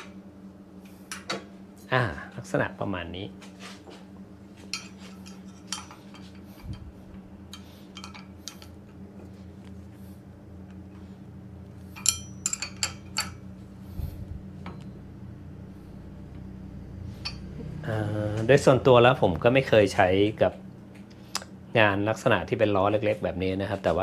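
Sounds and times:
steady low hum: 0:00.0 - 0:24.0
metal parts clinking and knocking: 0:04.8 - 0:06.8, 0:07.5 - 0:08.8, 0:11.9 - 0:13.4.

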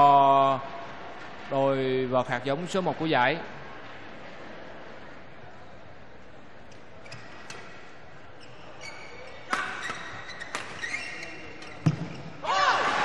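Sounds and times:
shoes squeaking on court: 0:06.6 - 0:12.4.

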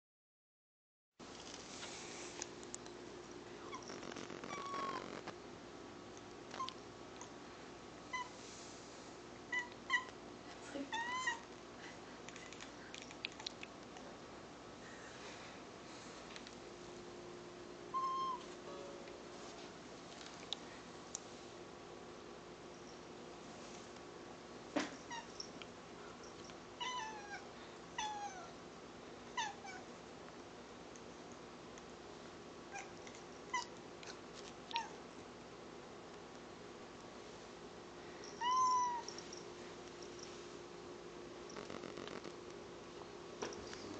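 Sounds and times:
cat chirping: 0:03.6 - 0:05.2, 0:08.1 - 0:08.4, 0:09.5 - 0:10.2, 0:17.9 - 0:18.5, 0:38.3 - 0:39.4.

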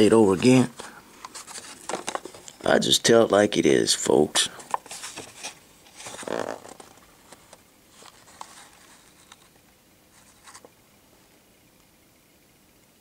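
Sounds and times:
plastic blister pack rustling: 0:00.6 - 0:02.6, 0:04.6 - 0:09.5.

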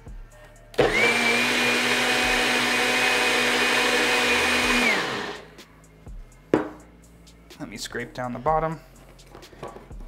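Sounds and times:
blender motor whining: 0:00.8 - 0:05.5.

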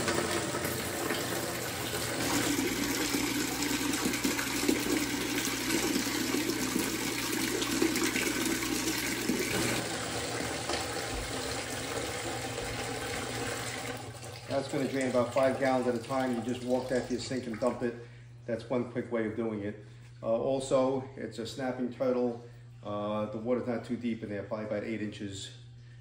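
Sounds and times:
water pouring into a bucket: 0:00.0 - 0:17.8.

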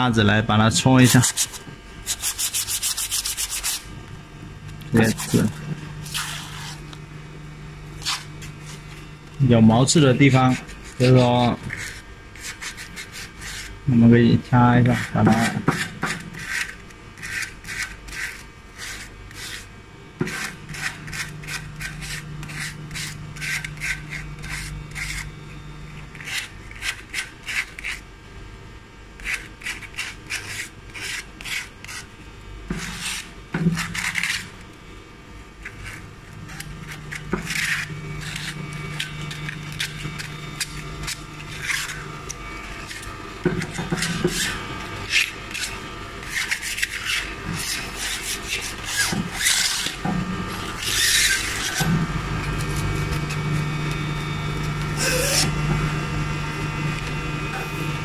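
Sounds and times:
sandpaper scratching metal: 0:01.0 - 0:03.9, 0:05.0 - 0:06.8, 0:10.3 - 0:13.7, 0:14.8 - 0:25.3, 0:26.1 - 0:28.0, 0:29.2 - 0:32.1, 0:32.7 - 0:34.5, 0:35.6 - 0:42.1, 0:42.8 - 0:50.0, 0:50.8 - 0:51.8, 0:55.0 - 0:55.5.

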